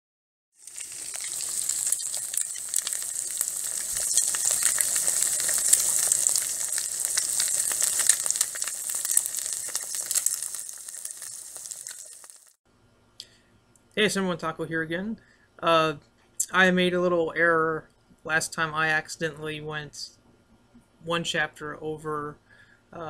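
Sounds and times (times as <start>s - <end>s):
food sizzling in hot oil: 0.5s - 12.6s.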